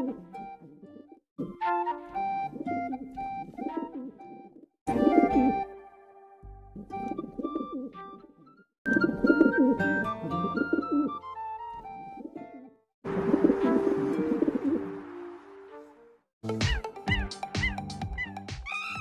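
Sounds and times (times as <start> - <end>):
background music of held notes: 0.0 - 18.6
pigeons cooing: 9.0 - 11.2.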